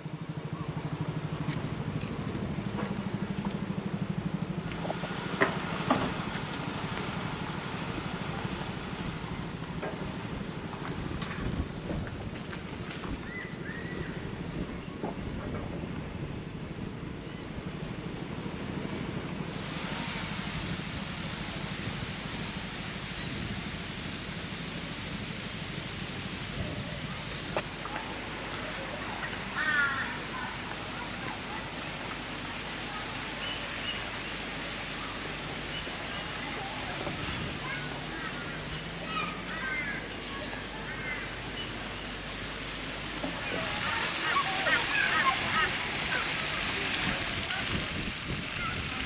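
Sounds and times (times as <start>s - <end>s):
engine idling: 0.0s - 11.5s, 14.2s - 29.5s
wind buffeting microphone: 1.3s - 27.7s, 45.2s - 49.0s.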